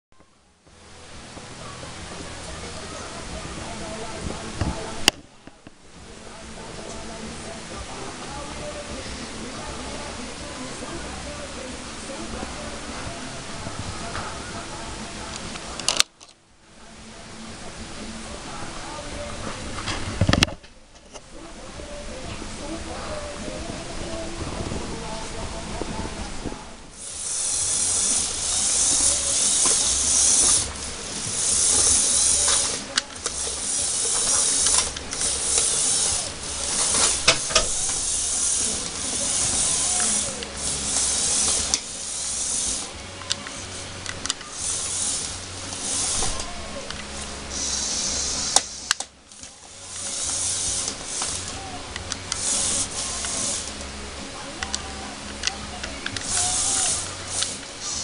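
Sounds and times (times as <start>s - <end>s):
plastic parts clicking and clacking: 15.3s - 16.4s
toy motors whirring through gearing: 27.0s - 53.9s, 54.5s - 58.0s.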